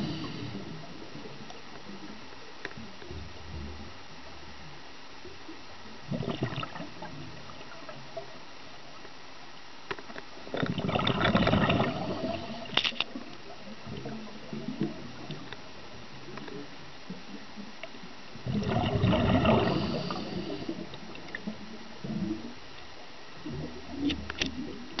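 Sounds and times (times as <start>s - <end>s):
underwater hiss: 0.0s - 1.4s, 11.3s - 15.5s, 18.4s - 21.6s
regulator bubbles gurgling: 5.8s - 8.6s, 10.4s - 22.6s, 23.4s - 25.0s.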